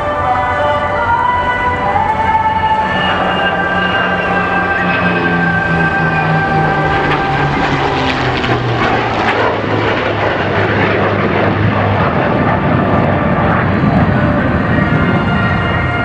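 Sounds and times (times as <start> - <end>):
loud jet engine noise: 0.0 - 16.0
low propeller-engine drone: 0.0 - 16.0.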